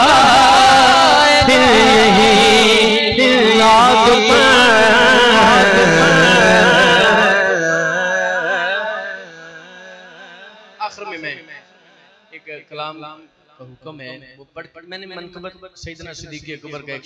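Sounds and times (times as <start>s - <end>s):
man singing over a pa system: 0.0s - 12.3s.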